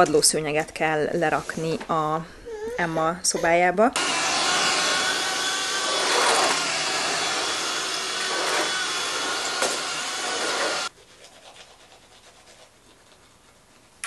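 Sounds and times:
stick vacuum cleaner motor whine: 0:04.0 - 0:10.9.

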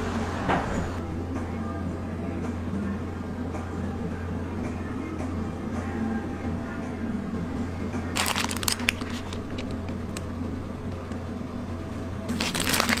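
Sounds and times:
steady low hum: 0:00.0 - 0:13.0
paper crinkling and rustling: 0:08.2 - 0:10.0, 0:12.3 - 0:13.0.

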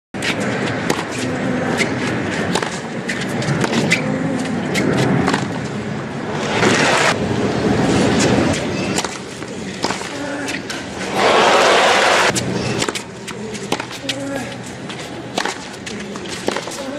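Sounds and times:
tennis racket strikes and bounces: 0:00.2 - 0:05.7, 0:08.0 - 0:16.9
crowd murmur: 0:00.3 - 0:16.9
crowd applause: 0:11.1 - 0:12.3.

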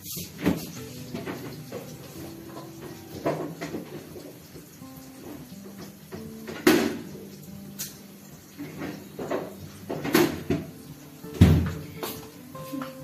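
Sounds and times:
utensils clanking: 0:00.0 - 0:13.0
cupboard doors knocking: 0:11.4 - 0:11.8.

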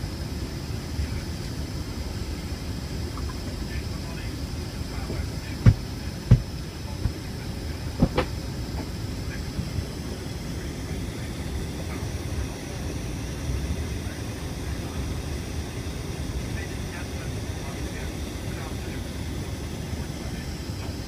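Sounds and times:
aircraft cabin rumble: 0:00.0 - 0:21.0
sharp thumps: 0:05.6 - 0:07.2, 0:08.0 - 0:08.4.

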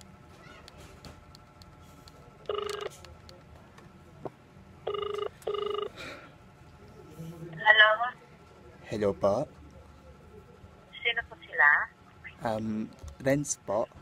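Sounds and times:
phone ringback tone: 0:02.5 - 0:02.9, 0:04.9 - 0:06.0.

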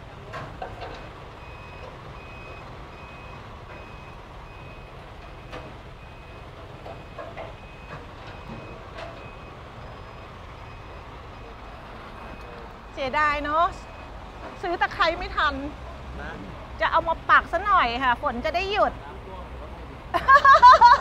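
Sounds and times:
reversing alarm beeping: 0:00.9 - 0:15.0.

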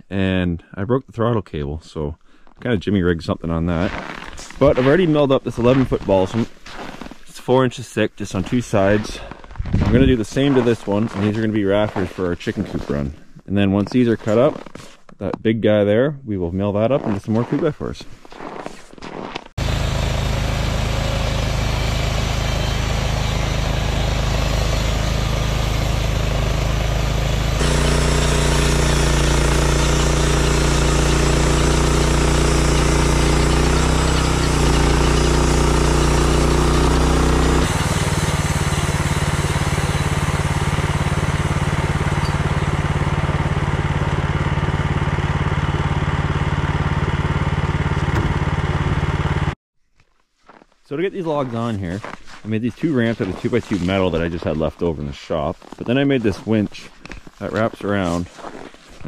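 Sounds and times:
bandsaw blade cutting log: 0:19.6 - 0:46.8
gas engine running: 0:19.6 - 0:49.6.

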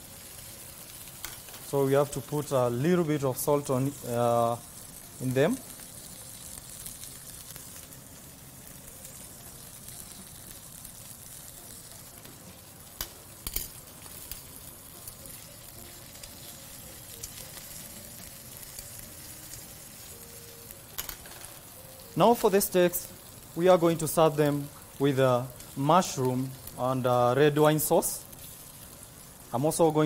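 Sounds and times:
meat sizzling on griddle: 0:00.0 - 0:30.0.

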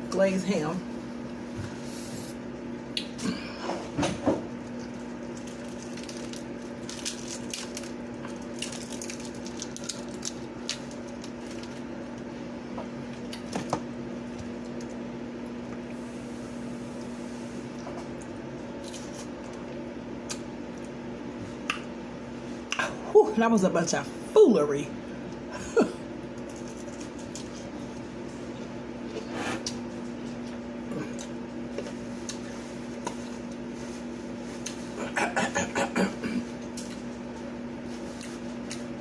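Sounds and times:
steady low hum: 0:00.0 - 0:39.0
chewing crunchy fried food: 0:04.5 - 0:12.3, 0:17.7 - 0:21.0, 0:26.3 - 0:28.8, 0:29.6 - 0:35.0, 0:36.5 - 0:39.0.

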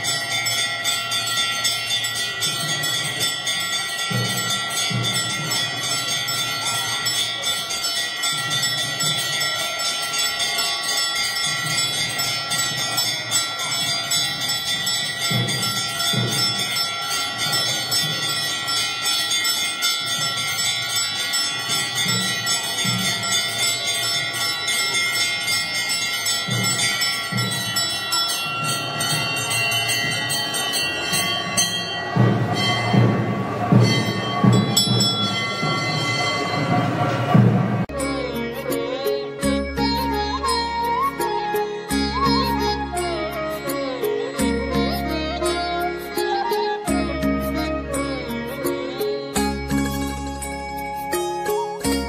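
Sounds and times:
temple bells ringing: 0:00.0 - 0:52.0
low beats: 0:26.1 - 0:38.6.

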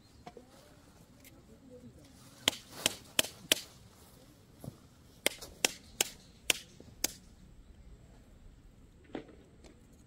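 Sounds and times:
tent peg being hammered: 0:02.4 - 0:03.7, 0:05.2 - 0:07.3.

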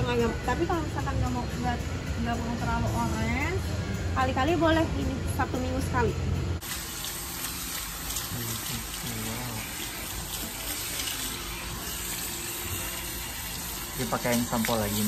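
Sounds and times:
shower sprayer running: 0:06.6 - 0:15.0.

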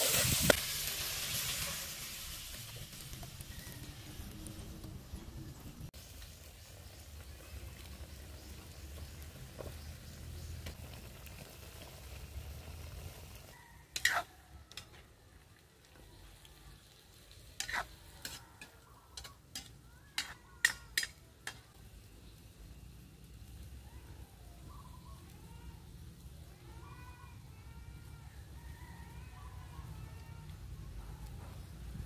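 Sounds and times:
stew simmering in a wok: 0:00.0 - 0:32.0
metal ladle scraping a wok: 0:13.9 - 0:15.0, 0:17.4 - 0:21.6.

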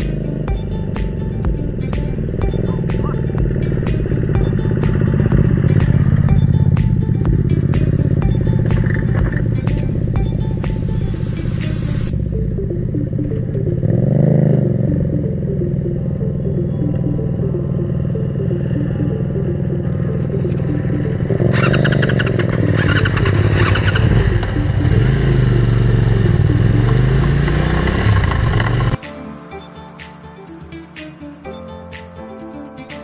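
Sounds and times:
motorcycle engine revving: 0:00.0 - 0:29.1.

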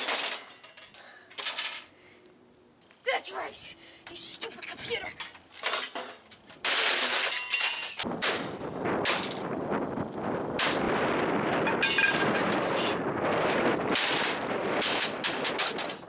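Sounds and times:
parts rattling and clattering: 0:00.0 - 0:02.0, 0:04.5 - 0:09.5, 0:11.6 - 0:16.0.

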